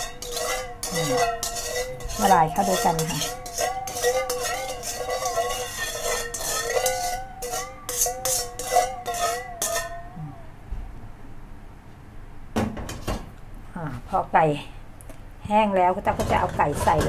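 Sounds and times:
spoon scraping metal bowl: 0:00.0 - 0:10.1, 0:16.0 - 0:17.0
spoon clinking: 0:00.0 - 0:10.2.

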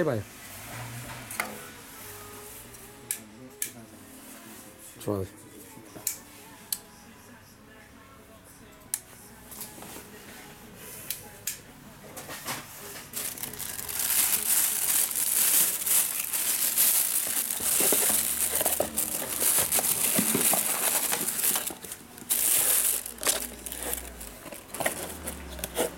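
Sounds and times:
plastic wrapping crinkling: 0:13.0 - 0:25.9
cardboard rubbing under hands: 0:13.2 - 0:25.9.

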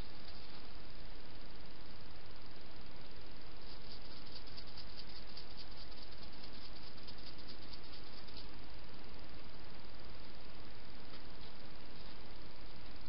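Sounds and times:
steady hiss: 0:00.0 - 0:13.0
hedgehog crunching dry food: 0:03.8 - 0:08.5.

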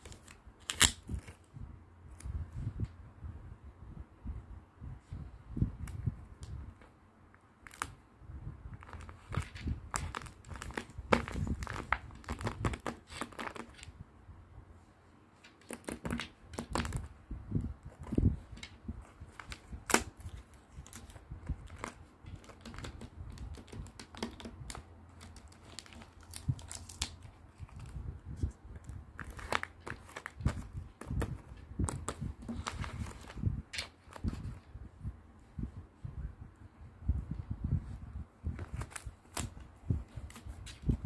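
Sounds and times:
paper crinkling and rustling: 0:08.8 - 0:13.9, 0:15.4 - 0:17.1, 0:17.8 - 0:34.6, 0:38.5 - 0:41.0.

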